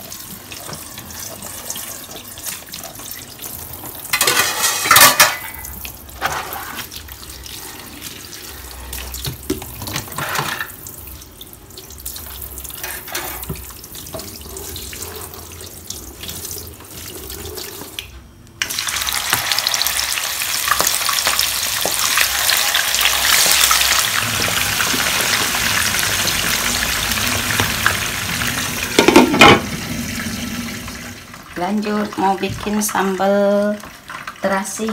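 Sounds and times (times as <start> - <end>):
clinks of crockery and utensils: 4.1 - 6.5, 9.5 - 10.8, 29.0 - 29.7
tap water running into sink: 23.4 - 31.3.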